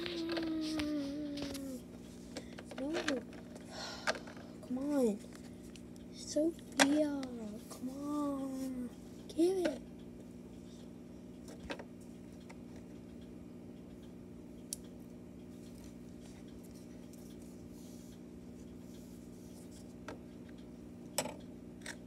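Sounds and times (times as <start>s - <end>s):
low room hum: 0.0s - 22.0s.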